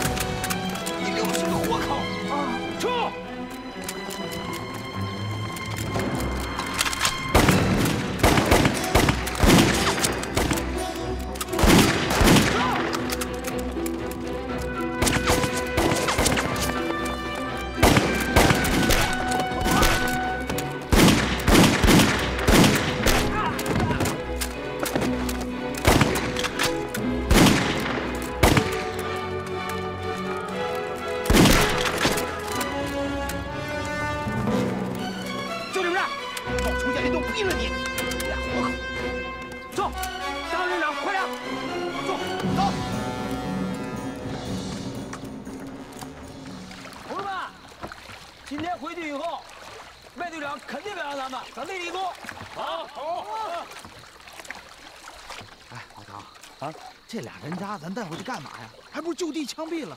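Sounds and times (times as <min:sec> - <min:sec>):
dramatic background music: 0:00.0 - 0:48.1
rapid gunshots: 0:07.3 - 0:10.6, 0:11.6 - 0:12.8, 0:20.9 - 0:23.3, 0:31.3 - 0:32.1.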